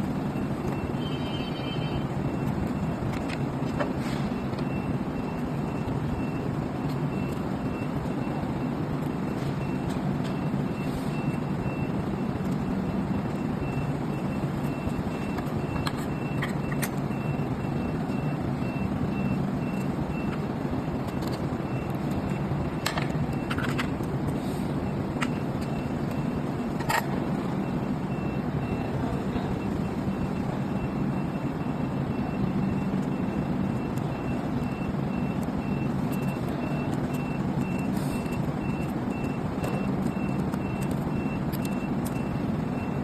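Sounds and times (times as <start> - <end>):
low rumble of machinery: 0.0 - 43.0
faint high beeps: 0.2 - 3.0, 24.8 - 43.0.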